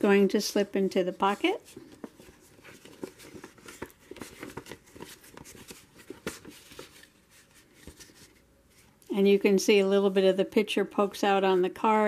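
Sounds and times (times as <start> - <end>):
paper rustling and scraping: 1.2 - 9.0.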